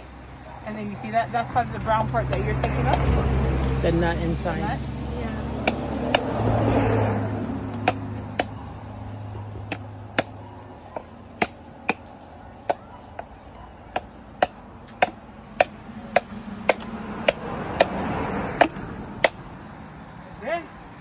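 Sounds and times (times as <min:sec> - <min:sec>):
machete chopping coconut: 0:01.8 - 0:03.3, 0:05.6 - 0:06.6, 0:07.7 - 0:08.6, 0:09.6 - 0:10.4, 0:11.0 - 0:13.3, 0:13.9 - 0:19.4.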